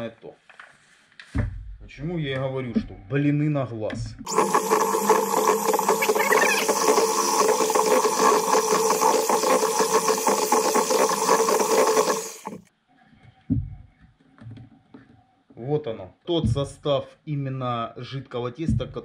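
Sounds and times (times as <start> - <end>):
electric hand mixer running: 4.3 - 12.7.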